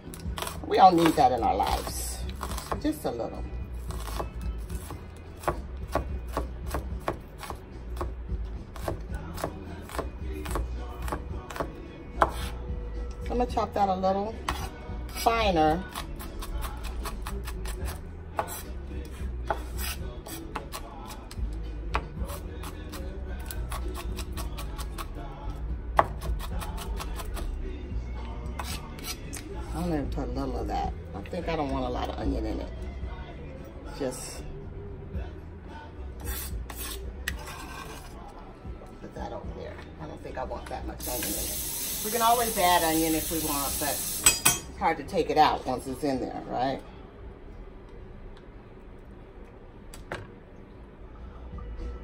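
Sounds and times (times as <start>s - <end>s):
knife chopping on cutting board: 3.9s - 8.1s, 8.8s - 12.6s, 19.5s - 20.8s, 26.0s - 27.5s.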